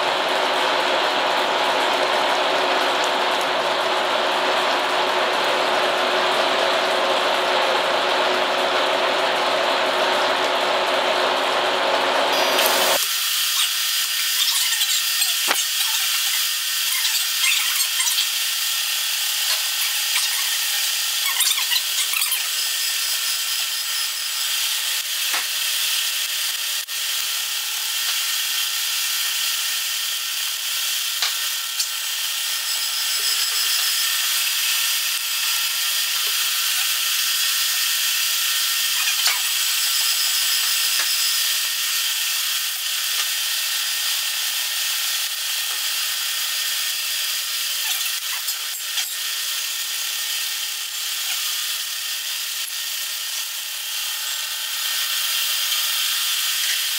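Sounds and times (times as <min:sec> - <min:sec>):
milling cutter cutting brass: 0:12.4 - 0:29.9, 0:30.5 - 0:43.4, 0:46.8 - 0:54.1.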